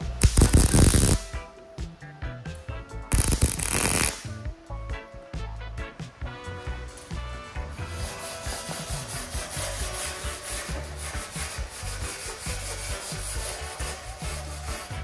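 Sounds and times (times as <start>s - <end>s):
background music with steady beat: 0.0s - 15.0s
hand tool scraping steel: 6.9s - 15.0s.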